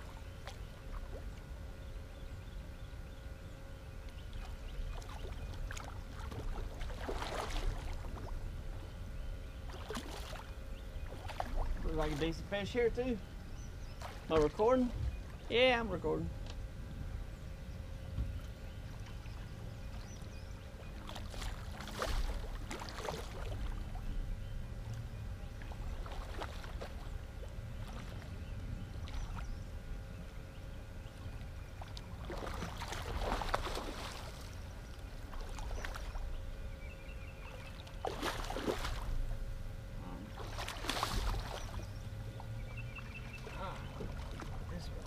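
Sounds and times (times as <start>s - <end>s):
fish splashing in water: 4.9s - 8.2s, 9.7s - 12.3s, 21.0s - 24.0s, 25.8s - 28.3s, 31.8s - 36.2s, 37.8s - 39.2s, 40.3s - 41.9s, 43.3s - 44.8s.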